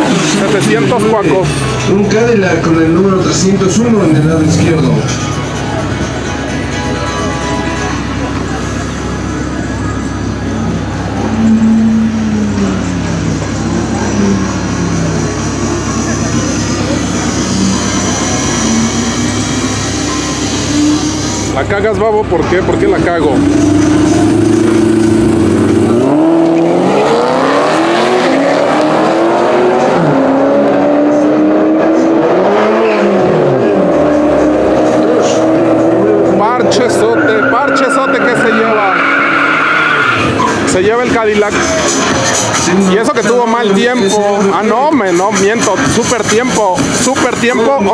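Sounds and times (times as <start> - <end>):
car engines idling: 0.0 - 47.9
music from loudspeakers: 3.6 - 10.0, 40.1 - 47.9.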